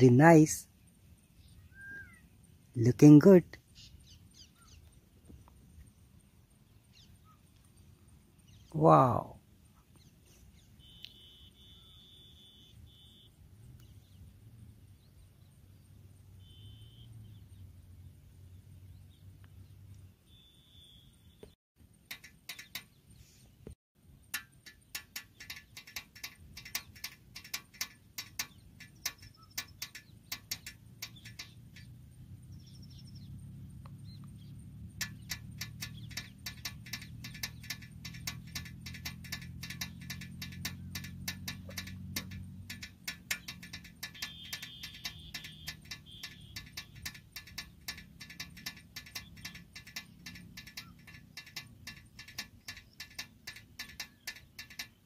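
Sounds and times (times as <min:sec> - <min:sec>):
toy tractor clicking on gravel: 0:24.3 - 0:32.0, 0:34.9 - 0:55.0.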